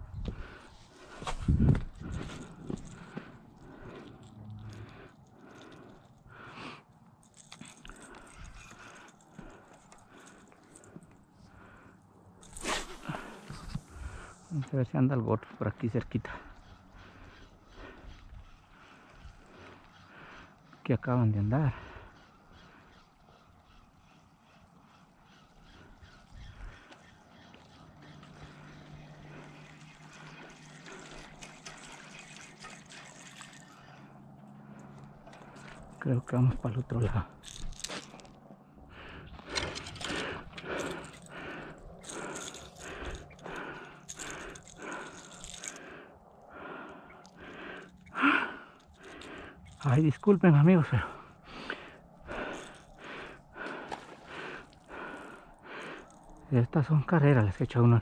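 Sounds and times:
water trickling and splashing: 28.8s - 34.4s.

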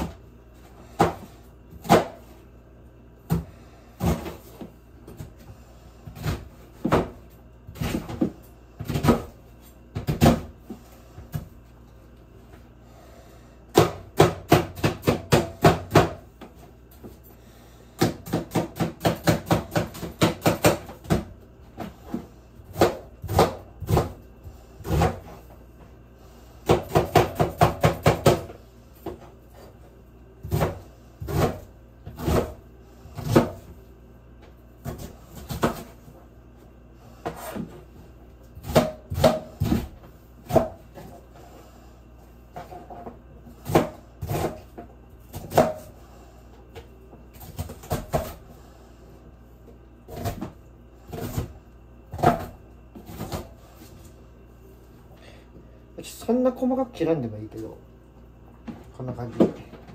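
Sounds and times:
knife chopping onion on board: 0.9s - 2.3s, 3.3s - 5.4s, 9.9s - 10.5s, 13.7s - 16.5s, 18.0s - 24.2s, 24.8s - 25.4s, 26.6s - 29.7s, 30.4s - 32.6s, 33.2s - 33.8s, 34.8s - 36.0s, 38.6s - 40.8s, 43.6s - 46.0s, 47.4s - 48.4s, 50.1s - 53.6s.

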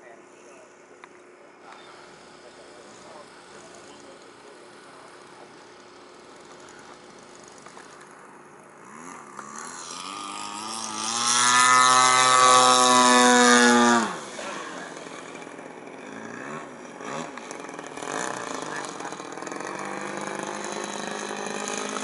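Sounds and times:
model airplane engine passing: 1.8s - 22.0s.

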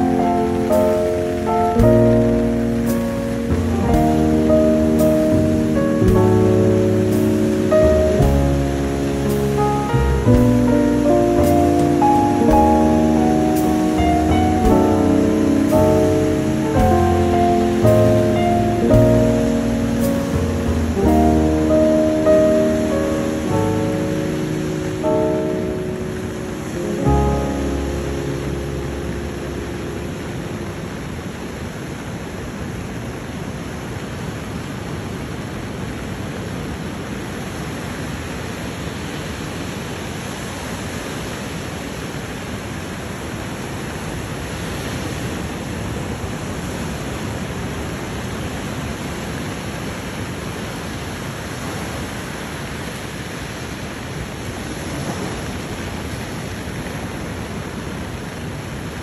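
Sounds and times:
ocean surf breaking: 0.0s - 32.4s, 51.3s - 58.0s.

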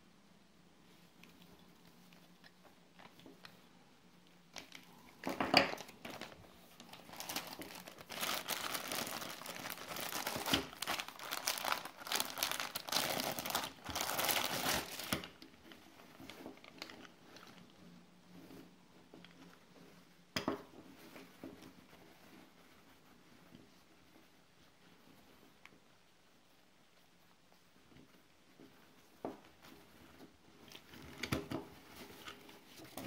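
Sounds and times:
faint handling sounds: 0.6s - 33.0s
plastic bag crinkling: 4.6s - 15.4s.

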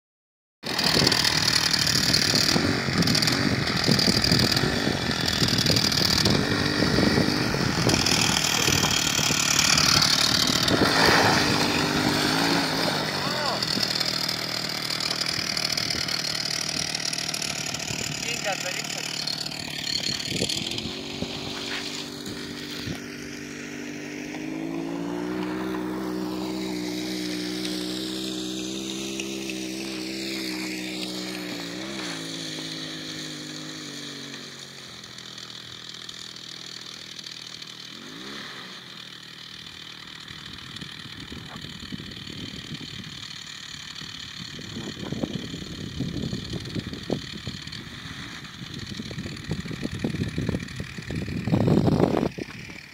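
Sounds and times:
two-stroke scooter engine: 0.6s - 52.9s.

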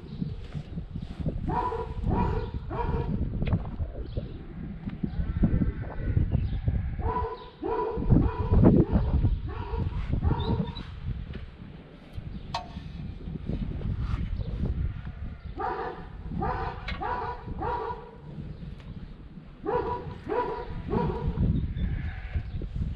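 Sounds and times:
dog barking: 1.5s - 3.2s, 7.0s - 10.8s, 15.6s - 18.2s, 19.6s - 21.4s.

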